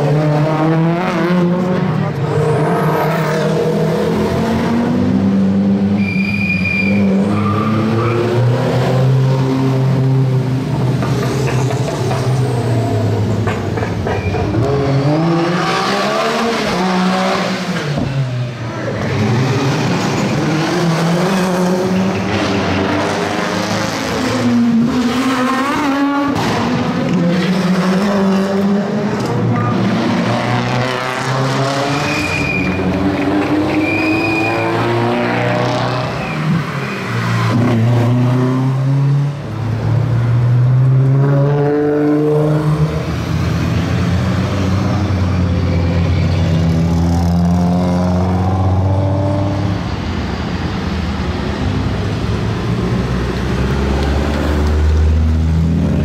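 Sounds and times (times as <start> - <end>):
tyre squeal: 5.9 - 8.4, 14.1 - 15.2, 31.8 - 35.0, 36.1 - 37.5
rally cars accelerating past: 18.9 - 49.8.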